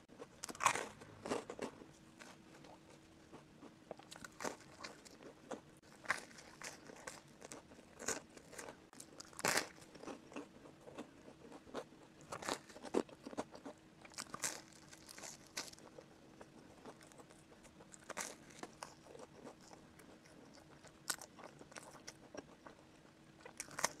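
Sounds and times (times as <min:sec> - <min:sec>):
person chewing with wet clicks: 0:00.2 - 0:24.0.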